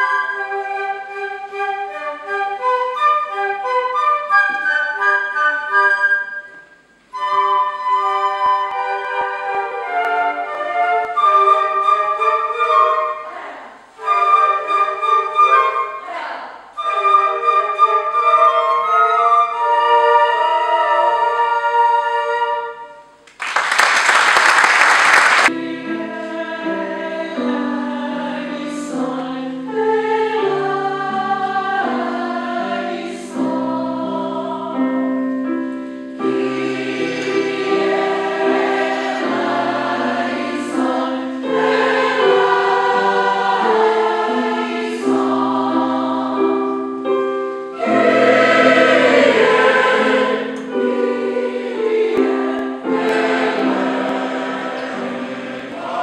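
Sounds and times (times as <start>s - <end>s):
flute ensemble note: 0.0s - 23.2s, 46.6s - 51.2s
large choir singing held chords: 6.1s - 23.2s, 24.9s - 56.0s
applause: 23.2s - 25.5s.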